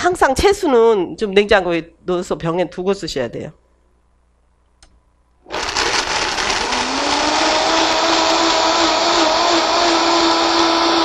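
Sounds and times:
blender running at high speed: 5.5s - 11.0s.

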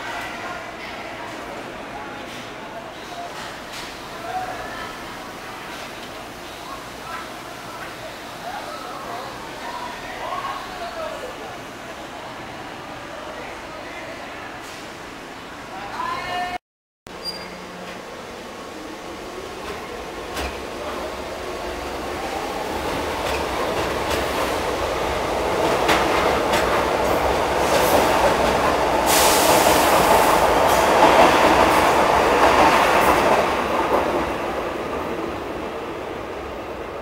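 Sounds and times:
train passing on elevated track: 17.5s - 37.0s.

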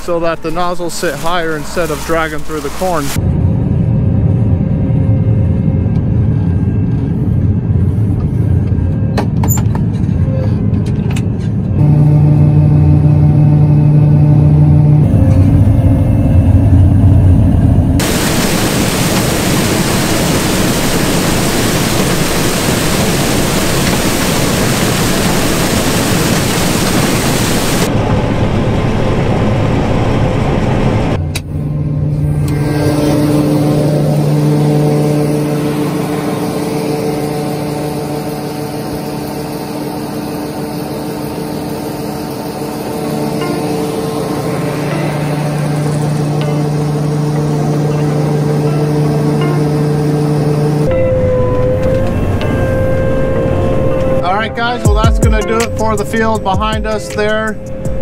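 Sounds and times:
combine machinery hum: 0.0s - 58.0s.

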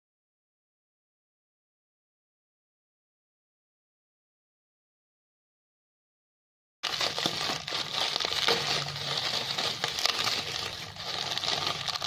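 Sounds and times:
plastic bags crinkling: 6.8s - 12.0s.

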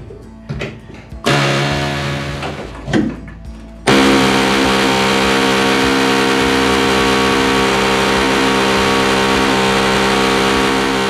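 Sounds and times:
air hammer on steel: 1.2s - 2.9s, 3.9s - 11.0s.

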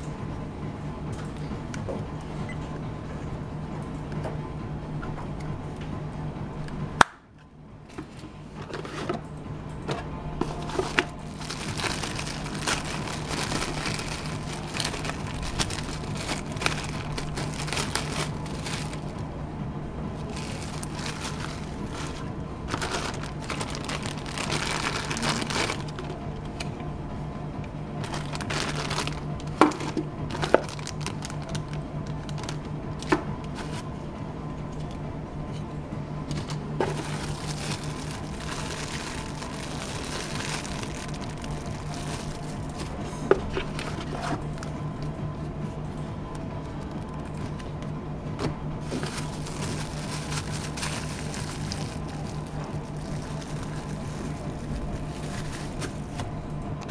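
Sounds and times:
steady low hum: 0.0s - 56.9s
plastic bags crinkling: 10.4s - 19.3s, 20.2s - 26.7s, 28.0s - 32.7s, 36.3s - 44.7s, 48.8s - 56.3s.

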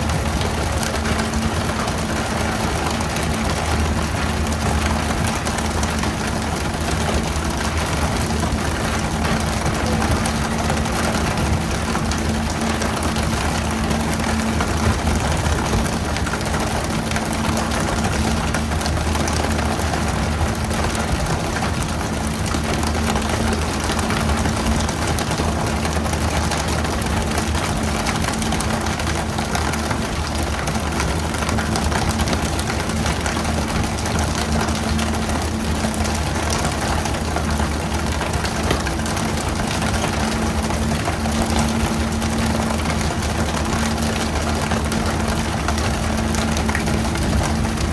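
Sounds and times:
boat engine running: 0.0s - 47.9s.

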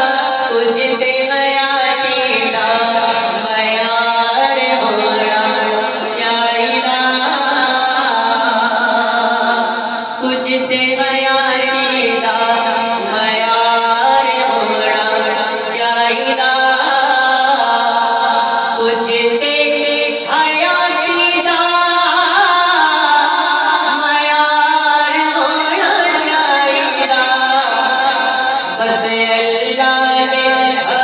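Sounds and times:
man singing unaccompanied: 0.0s - 31.0s.

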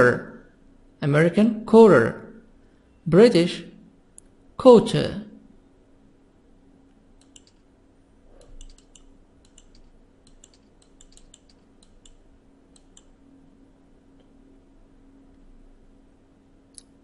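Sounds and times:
faint low hum: 0.0s - 17.0s
computer mouse clicking: 7.2s - 7.7s, 8.3s - 13.2s.

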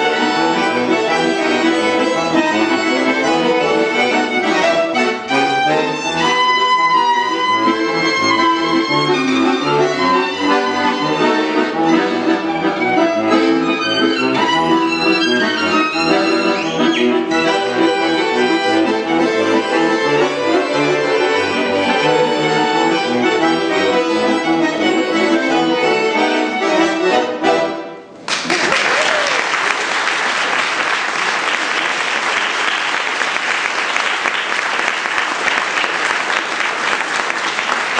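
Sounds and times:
violin and accordion tune: 0.0s - 28.1s
audience applauding: 28.2s - 37.9s.

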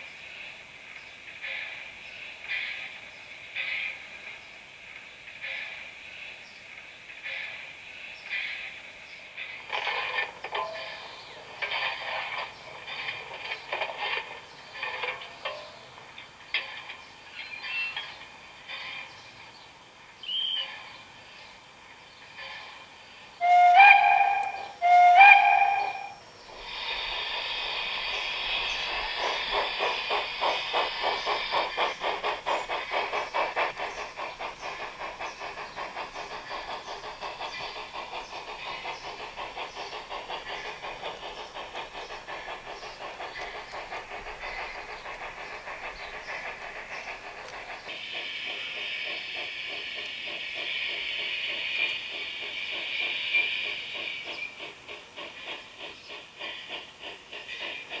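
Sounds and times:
steam locomotive chuffing: 0.0s - 58.0s
steam locomotive whistle blasts: 23.4s - 26.2s.

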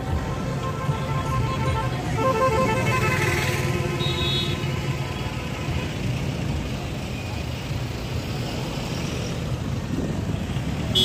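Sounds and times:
car horns honking: 0.1s - 5.3s.

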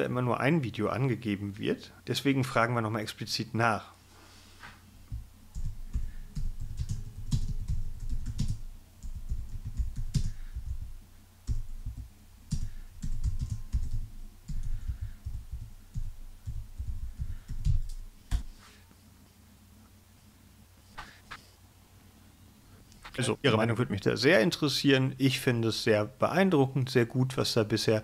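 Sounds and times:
typing on computer keyboard: 5.1s - 18.4s.

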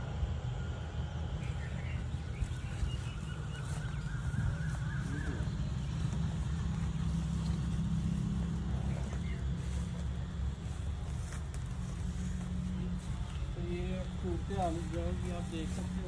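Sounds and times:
wind buffeting microphone: 1.5s - 16.0s.

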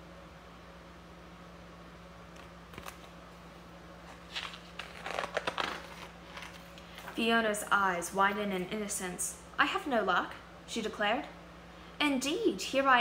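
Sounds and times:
low electrical hum: 0.0s - 13.0s
book pages rustling: 2.3s - 3.2s, 4.0s - 7.3s.

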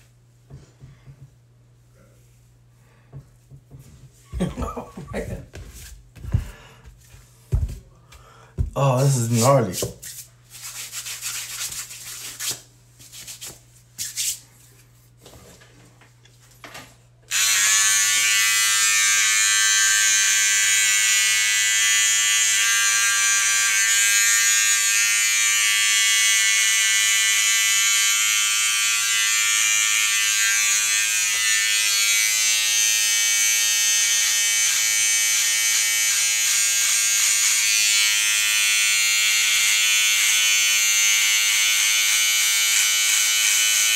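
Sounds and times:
electric hair clipper buzzing: 17.3s - 43.9s.

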